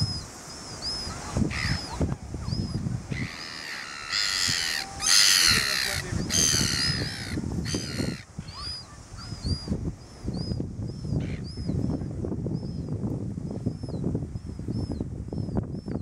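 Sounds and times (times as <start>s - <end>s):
gulls squealing calls: 0.6s - 9.7s.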